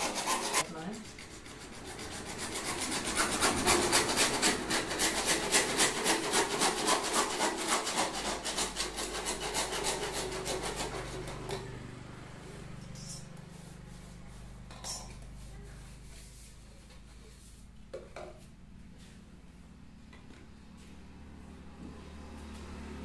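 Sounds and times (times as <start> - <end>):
hacksaw cutting plastic pipe: 0.0 - 11.7.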